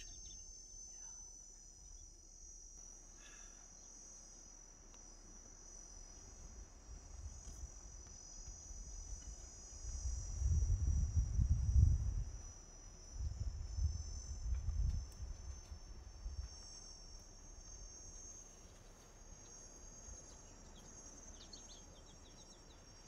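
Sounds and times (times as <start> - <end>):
insects shrilling: 15.8 - 23.0.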